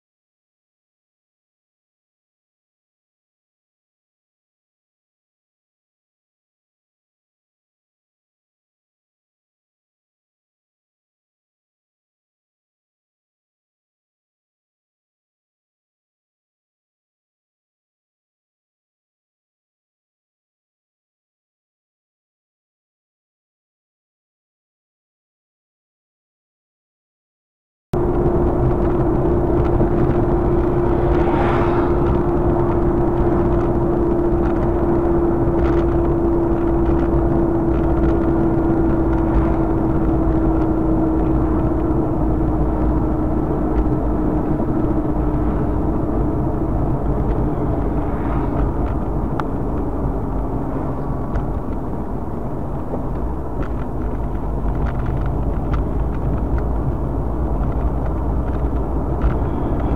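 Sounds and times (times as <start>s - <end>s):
car road and engine noise: 28.0s - 59.9s.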